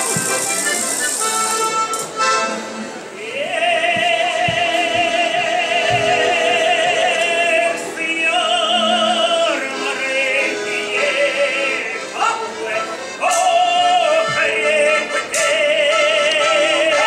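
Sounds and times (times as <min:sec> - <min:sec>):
folk singing with vibrato: 0:03.0 - 0:17.0.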